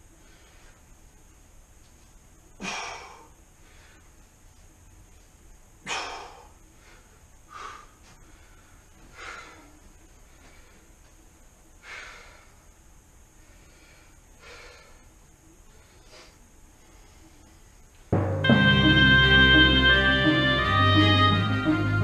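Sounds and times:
man breathing heavily: 0:00.0 - 0:01.0, 0:02.5 - 0:04.3, 0:05.8 - 0:17.9.

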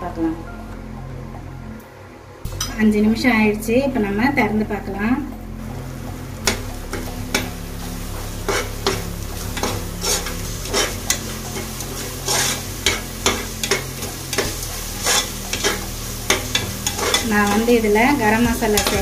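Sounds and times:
masala sizzling in oil: 0:05.6 - 0:19.0
metal spatula scraping a pot: 0:08.4 - 0:17.9.

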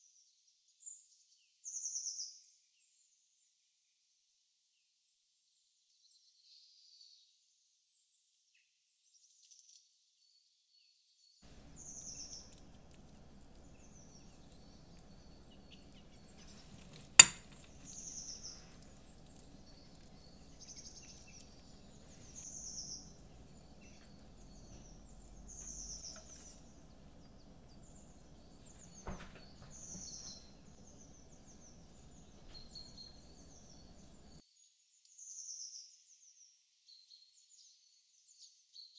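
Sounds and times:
birds chirping: 0:11.4 - 0:34.4
faint low outdoor rumble: 0:11.4 - 0:34.4.

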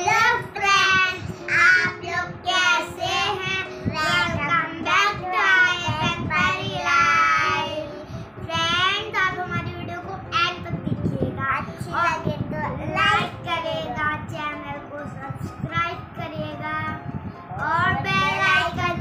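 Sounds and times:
girls singing together: 0:00.0 - 0:08.1.

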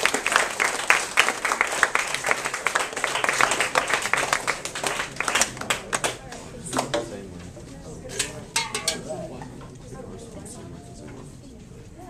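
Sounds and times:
audience clapping: 0:00.0 - 0:06.4.

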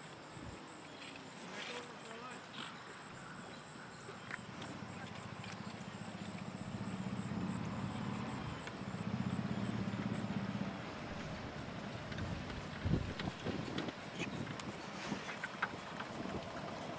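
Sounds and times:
low engine hum: 0:04.7 - 0:13.8.

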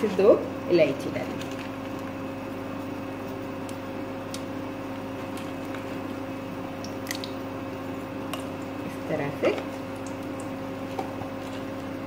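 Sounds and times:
steady background hum: 0:00.0 - 0:12.0
spices crackling in hot oil: 0:03.3 - 0:12.0.

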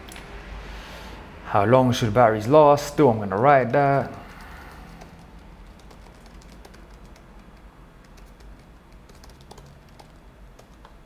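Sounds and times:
keyboard typing: 0:03.2 - 0:11.0.

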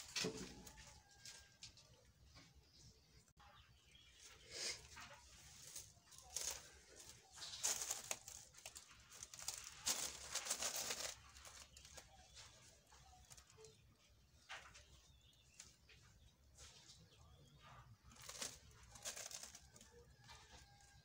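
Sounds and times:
plastic net rustling and crinkling: 0:04.2 - 0:21.0.

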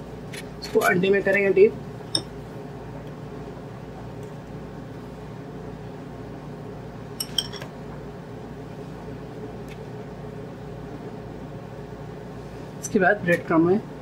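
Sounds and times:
low background hum: 0:00.0 - 0:14.0
fork clinking against ceramic bowl: 0:07.2 - 0:07.6.

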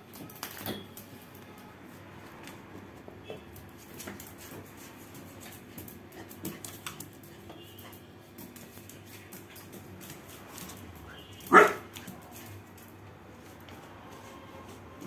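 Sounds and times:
puppy claws clicking on tiles: 0:03.6 - 0:13.0.

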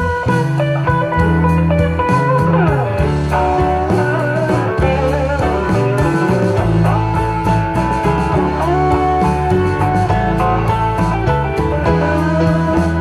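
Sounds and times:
blues guitar music: 0:00.0 - 0:13.0.

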